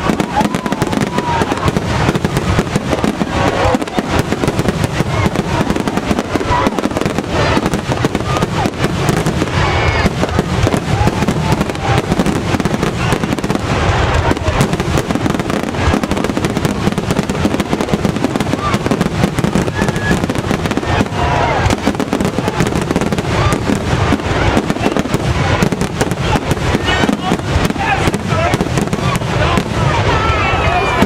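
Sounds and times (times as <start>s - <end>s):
fireworks bursting: 0.0s - 31.0s.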